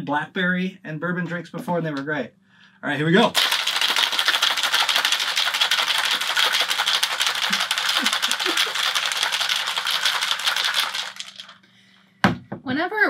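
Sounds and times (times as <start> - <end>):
ice rattling in cocktail shaker: 3.3 - 11.6.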